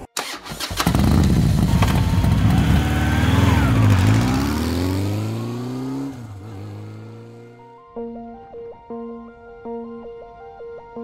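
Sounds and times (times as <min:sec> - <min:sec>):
motorcycle engine revving: 0:00.2 - 0:07.7.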